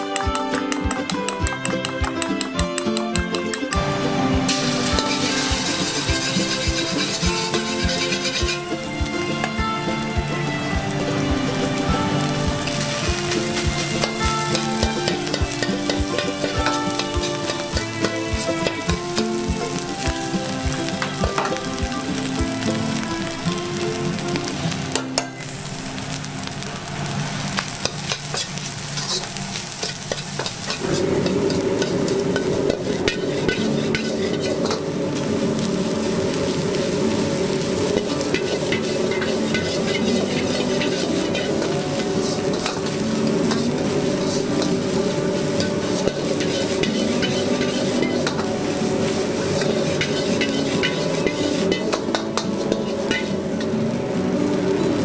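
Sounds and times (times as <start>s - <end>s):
rice sizzling in a wok: 0.0s - 3.1s, 3.7s - 55.0s
metal ladle scraping wok: 4.5s - 20.0s, 27.7s - 35.4s, 37.5s - 53.8s.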